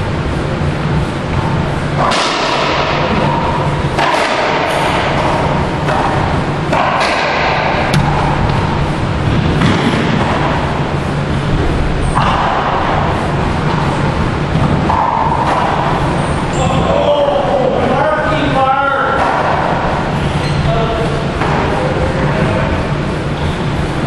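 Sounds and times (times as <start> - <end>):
steady low hum: 0.0 - 24.0
racquetball hits off court walls: 4.0 - 10.6.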